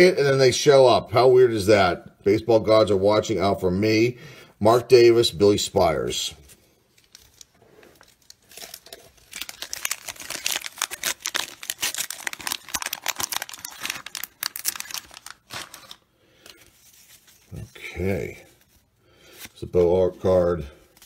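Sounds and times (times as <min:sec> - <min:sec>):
wax paper wrapper crackling: 0:06.4 - 0:21.0.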